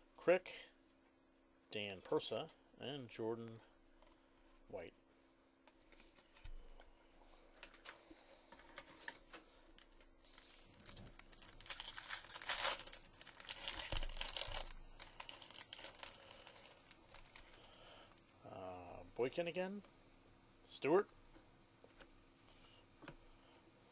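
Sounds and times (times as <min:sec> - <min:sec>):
foil wrapper tearing and crinkling: 0:08.9 - 0:17.8.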